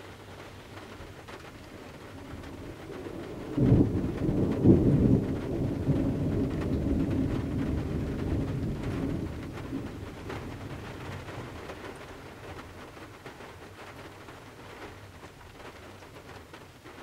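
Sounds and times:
rain pattering on windows: 0:00.0 - 0:17.0
thunder clap: 0:00.8 - 0:15.0
deep rolling thunder rumble: 0:01.2 - 0:13.0.

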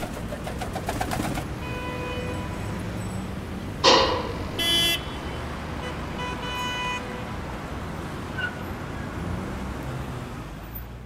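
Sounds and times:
traffic hum: 0:00.0 - 0:11.0
sudden loud burst: 0:03.8 - 0:05.4
car horn toot: 0:03.8 - 0:07.3.

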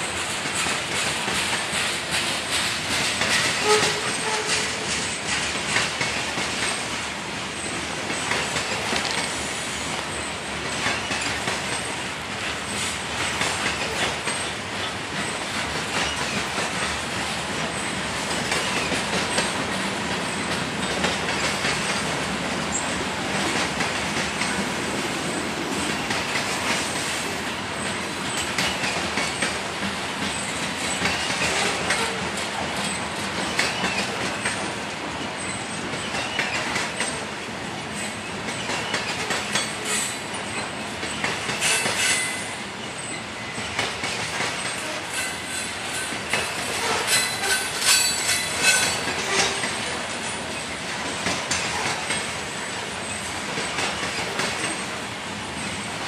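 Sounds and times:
train wheels rumbling on rails: 0:00.0 - 0:56.0
wheel flange squeal: 0:46.8 - 0:49.7.

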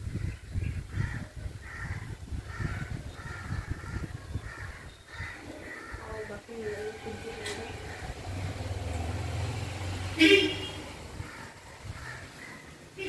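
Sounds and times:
crow cawing: 0:01.0 - 0:08.3, 0:11.2 - 0:12.7.

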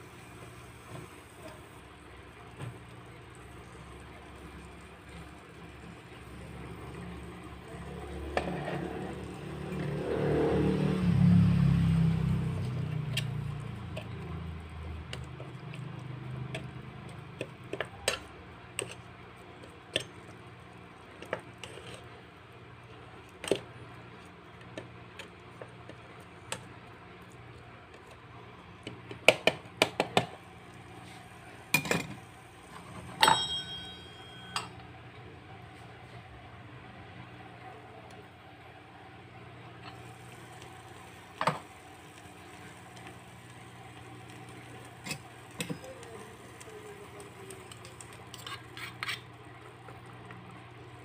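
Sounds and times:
metal lid clinking on pan: 0:33.2 - 0:34.7
metal spoon clinking on pan: 0:33.2 - 0:34.8.

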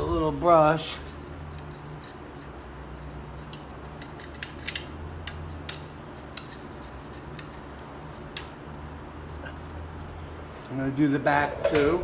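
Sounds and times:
low steady hum: 0:00.0 - 0:12.0
brush scrubbing metal: 0:00.1 - 0:12.0
light clicks of brush on metal: 0:03.4 - 0:07.6.

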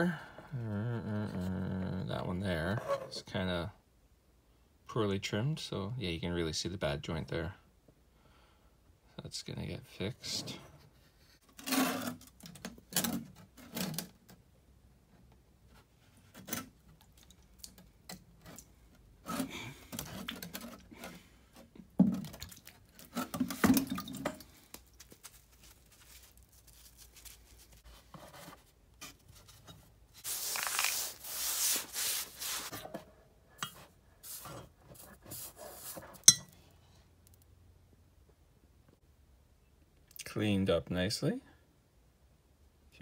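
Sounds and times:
sponge handling rubs and knocks: 0:18.4 - 0:36.2
sponge squeezing: 0:24.4 - 0:28.2, 0:30.2 - 0:32.7
running water over sponge: 0:30.2 - 0:32.7.

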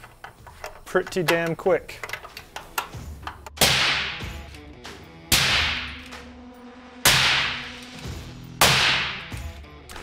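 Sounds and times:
faint background music: 0:00.0 - 0:10.0
suppressed rifle shots: 0:07.0 - 0:07.7.

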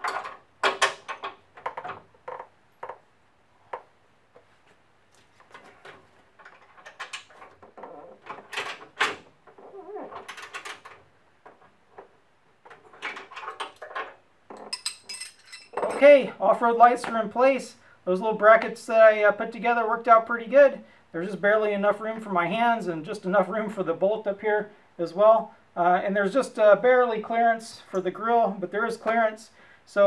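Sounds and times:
wrench and bolt clicking and clinking: 0:00.0 - 0:02.5, 0:05.5 - 0:09.2, 0:12.7 - 0:16.1.

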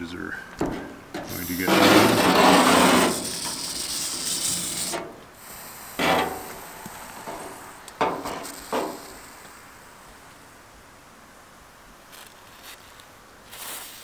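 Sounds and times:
aerosol spray hissing: 0:03.0 - 0:09.7, 0:13.5 - 0:14.0.

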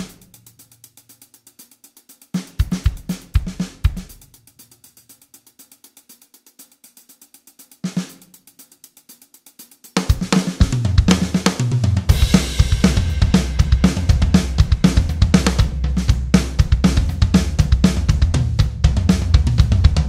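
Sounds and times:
hi-hat ticks: 0:00.0 - 0:11.7
drum kit: 0:00.0 - 0:20.0
heavy bass line: 0:12.1 - 0:20.0.

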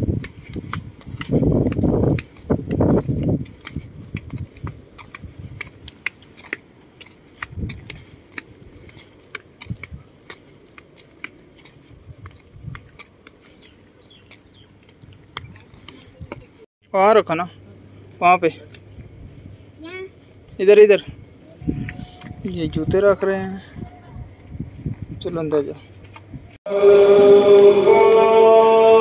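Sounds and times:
footsteps on gravel and paving: 0:00.0 - 0:16.7, 0:21.6 - 0:23.3.

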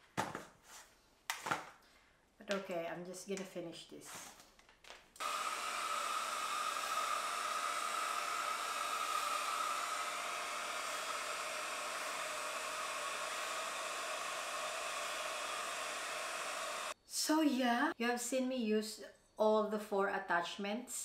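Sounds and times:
hair styler fan blowing: 0:05.2 - 0:17.0.

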